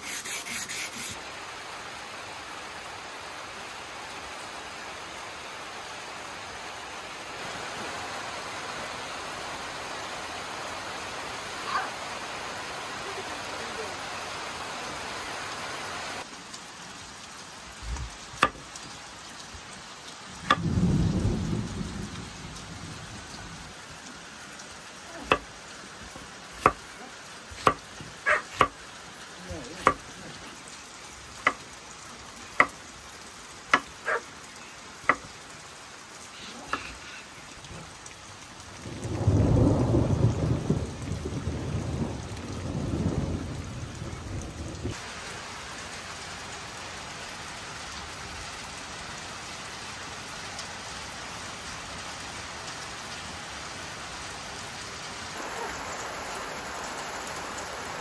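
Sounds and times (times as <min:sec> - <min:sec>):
steady rain: 0:00.0 - 0:58.0
thunder rumbling: 0:20.5 - 0:23.8, 0:38.9 - 0:45.0.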